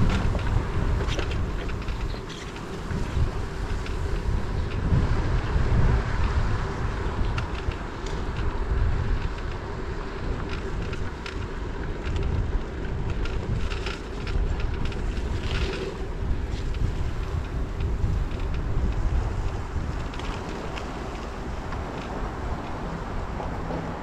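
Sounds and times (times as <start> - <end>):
light clicks and rattles: 0.0 - 4.9, 10.3 - 24.0
wind buffeting microphone: 0.0 - 24.0.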